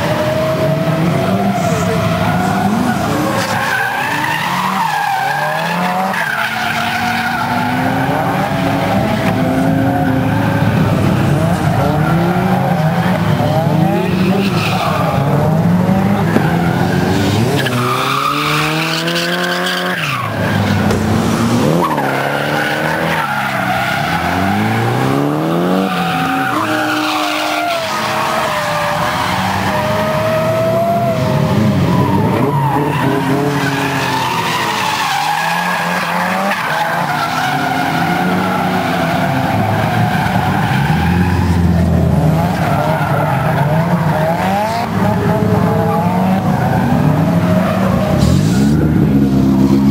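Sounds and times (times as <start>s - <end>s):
car engines revving hard: 0.0s - 49.9s.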